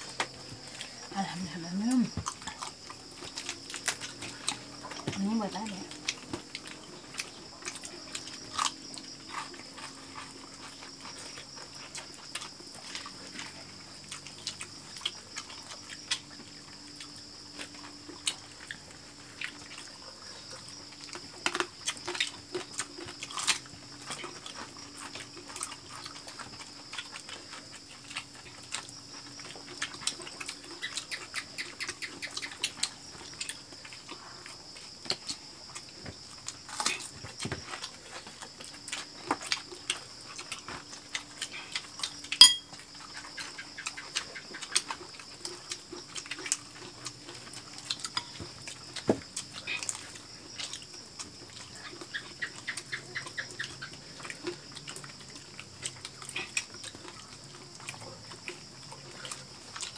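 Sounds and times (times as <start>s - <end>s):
chewing and lip-smacking: 0.0s - 59.9s.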